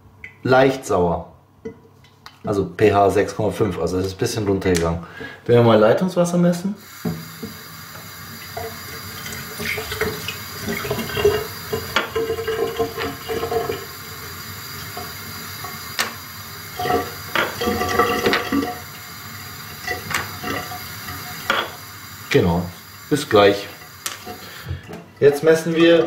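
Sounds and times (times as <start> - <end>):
tap water running into a sink: 6.8 - 26.0.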